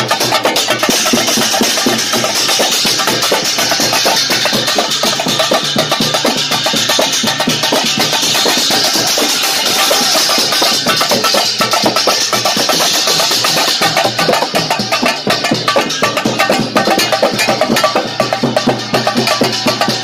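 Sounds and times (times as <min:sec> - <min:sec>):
drums beating fast: 0:00.0 - 0:20.0
crowd noise: 0:00.8 - 0:16.8.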